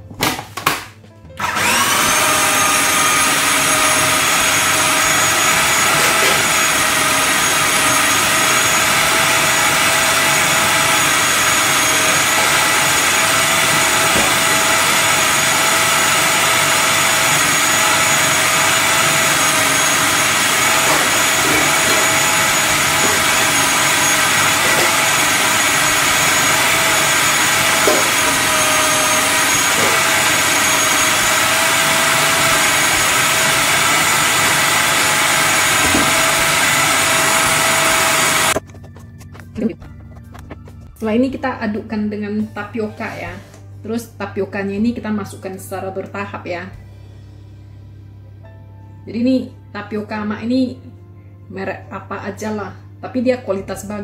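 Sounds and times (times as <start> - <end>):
food processor motor whining: 1.4 - 39.5.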